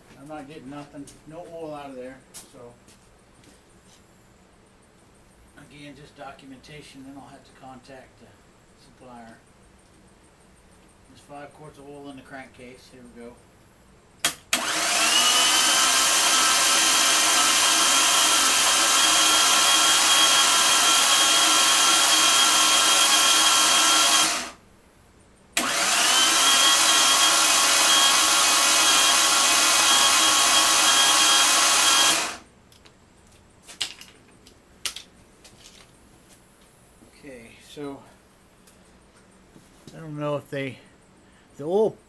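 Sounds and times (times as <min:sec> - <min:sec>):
electric drill motor whine: 0:14.3 - 0:24.6, 0:25.6 - 0:32.5.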